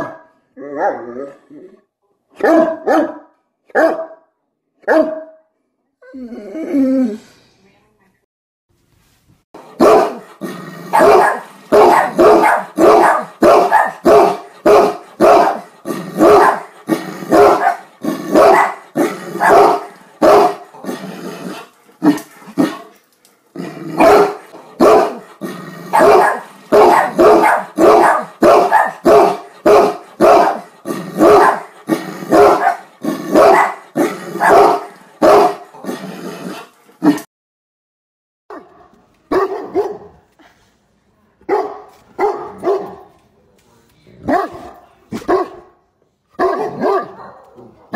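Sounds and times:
dog barking loudly: 0.0 - 1.0, 2.4 - 4.2, 4.9 - 5.4, 9.6 - 20.8, 23.9 - 36.0, 38.5 - 40.1, 41.5 - 43.1, 44.3 - 45.7, 46.4 - 47.9.

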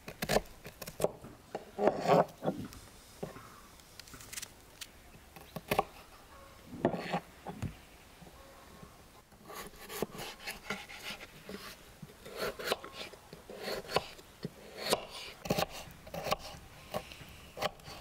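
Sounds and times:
knife scraping potato: 0.1 - 1.1, 1.8 - 2.5, 6.9 - 7.3, 9.4 - 18.0
knife cutting on wooden board: 1.8 - 2.5, 6.8 - 7.2, 9.5 - 18.0.

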